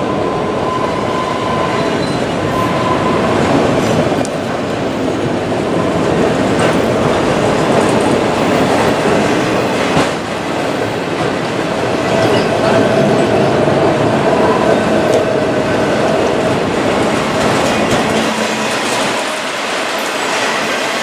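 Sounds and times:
steel wheels rumbling on rail: 0.0s - 21.0s.

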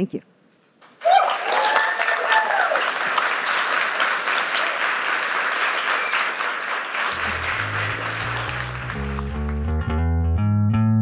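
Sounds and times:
audience applauding: 0.9s - 9.8s
music with bass line: 7.2s - 11.0s.

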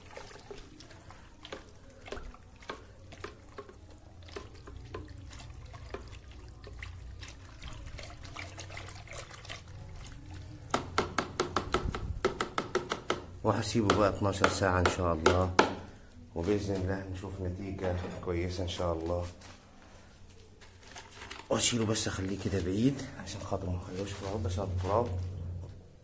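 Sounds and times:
liquid sloshing in bucket: 0.0s - 11.0s, 20.7s - 26.0s.

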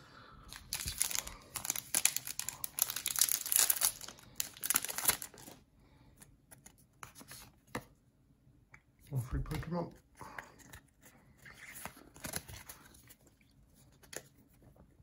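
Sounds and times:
foil wrapper crinkling and tearing: 0.5s - 5.6s.

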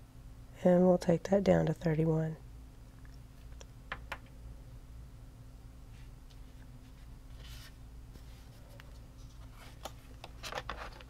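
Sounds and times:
faint low hum: 0.0s - 11.0s
paper rustle: 6.9s - 11.0s.

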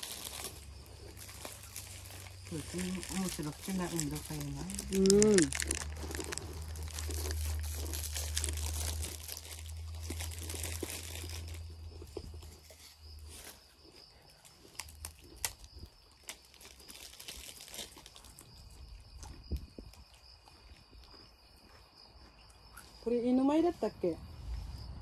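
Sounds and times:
plastic wrappers crinkling: 0.0s - 13.6s, 14.6s - 18.7s
low rumble: 0.8s - 12.6s, 24.2s - 25.0s.

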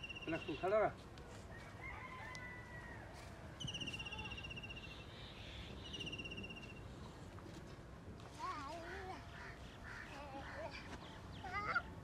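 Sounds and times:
faint background noise: 0.0s - 12.0s.

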